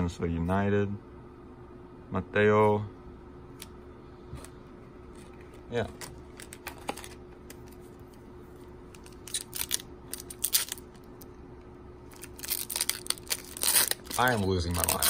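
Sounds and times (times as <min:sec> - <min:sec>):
foil wrapper crinkling and tearing: 0:09.0 - 0:11.0, 0:12.1 - 0:15.0.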